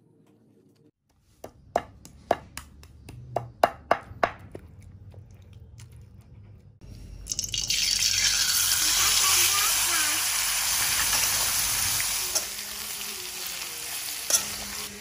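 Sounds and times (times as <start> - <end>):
loud sizzle in hot oil: 7.4 - 15.0.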